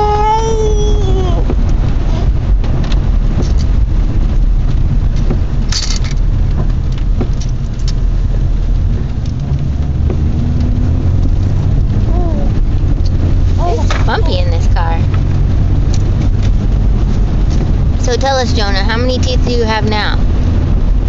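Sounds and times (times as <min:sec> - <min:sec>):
car engine and tyre rumble: 0:00.0 - 0:21.0.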